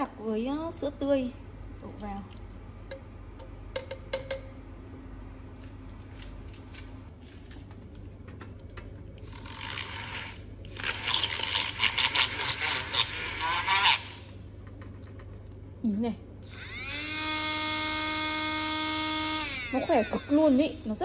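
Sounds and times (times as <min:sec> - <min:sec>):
milk frother buzzing: 0:09.2 - 0:14.3, 0:16.4 - 0:21.0.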